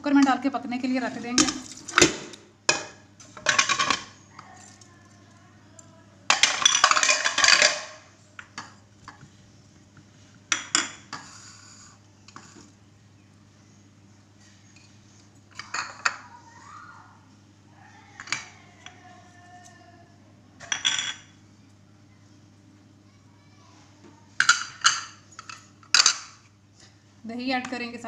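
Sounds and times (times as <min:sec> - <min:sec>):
bowls and pot clattering: 0:01.2 - 0:04.8, 0:06.3 - 0:09.2, 0:10.5 - 0:11.4, 0:15.5 - 0:16.4, 0:20.6 - 0:21.4, 0:24.4 - 0:26.5.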